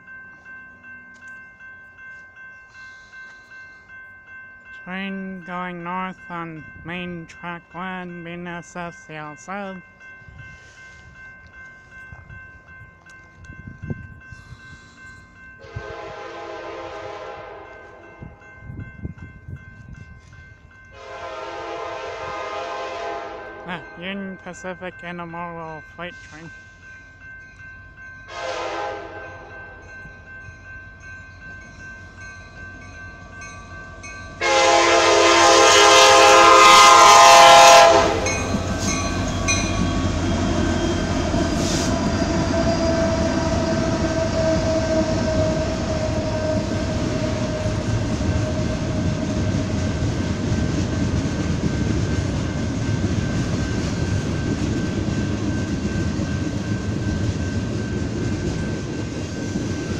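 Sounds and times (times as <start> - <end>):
crossing bell ringing: 0.0 - 59.9
freight train rumbling past: 0.0 - 59.9
locomotive horn blast: 15.6 - 17.8, 21.0 - 24.0, 28.3 - 29.5, 34.4 - 38.3, 41.6 - 49.4.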